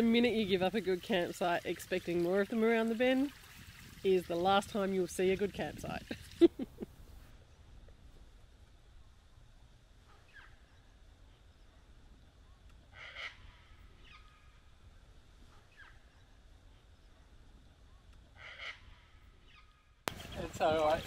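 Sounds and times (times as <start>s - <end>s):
faint bird calls: 10.0s - 14.7s, 15.4s - 17.3s, 17.9s - 20.5s.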